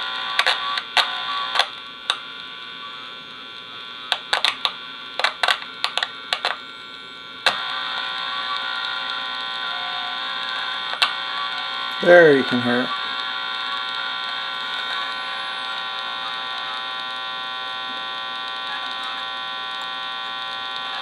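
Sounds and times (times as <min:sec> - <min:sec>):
electrical buzz: 0:00.0 - 0:21.0
sharp clicks and crackles: 0:00.3 - 0:02.6, 0:04.1 - 0:09.2, 0:10.4 - 0:12.0.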